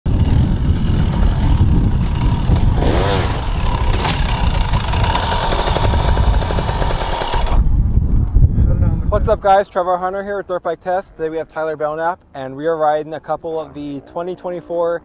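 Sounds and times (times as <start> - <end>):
dirt bike engine running hard: 0.1 - 8.0.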